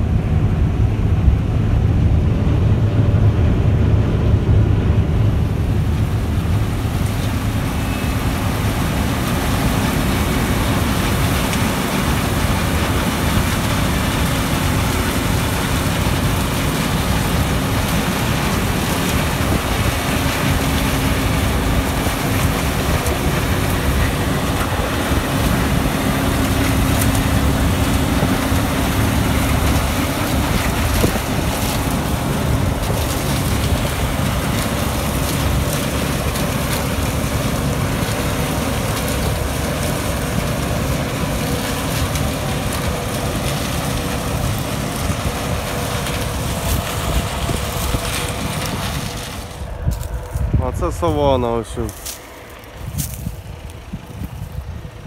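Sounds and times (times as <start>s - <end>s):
combine harvester running: 0.0s - 55.0s
wind buffeting microphone: 42.3s - 51.3s, 52.4s - 55.0s.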